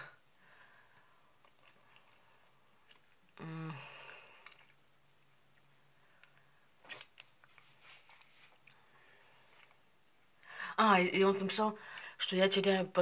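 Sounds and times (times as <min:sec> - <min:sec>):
mouth clicks and smacks: 0:02.8 - 0:03.4, 0:04.0 - 0:07.7
person humming mm: 0:03.4 - 0:04.3.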